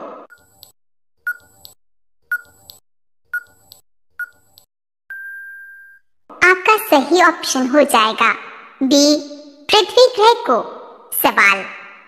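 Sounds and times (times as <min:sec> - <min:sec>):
short electronic beeps: 0:01.3 - 0:01.6, 0:02.3 - 0:02.6, 0:03.4 - 0:03.6
long steady beep: 0:05.1 - 0:06.0.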